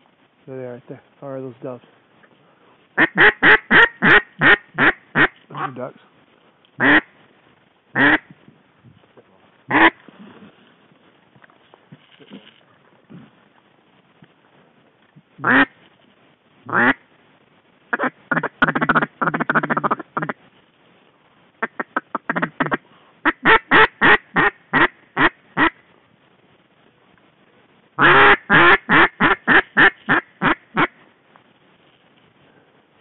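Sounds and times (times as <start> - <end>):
duck call squealing and whistling: 3.0 - 5.7, 21.7 - 25.7, 28.0 - 30.9.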